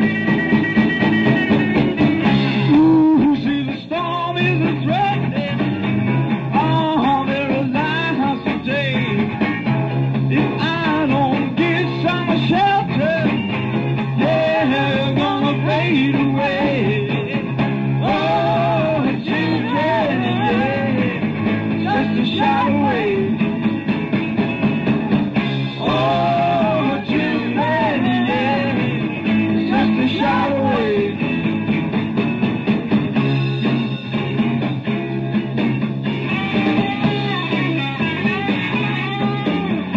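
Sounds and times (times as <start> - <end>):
rock band music: 0.0 - 39.9
person singing: 2.6 - 5.7, 6.5 - 9.3, 10.3 - 13.4, 14.2 - 21.2, 21.8 - 23.4, 25.7 - 31.3, 36.2 - 39.7.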